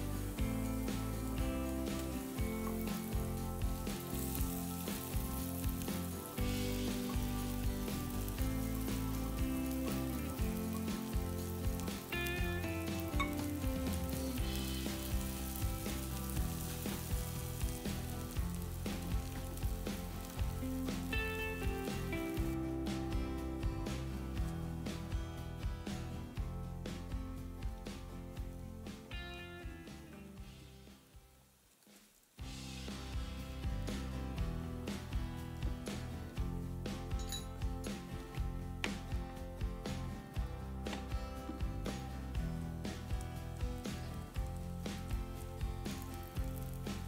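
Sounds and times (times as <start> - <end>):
garlic sizzling in hot oil: 0.0 - 26.0, 39.8 - 47.0
background music: 0.0 - 31.6, 32.4 - 47.0.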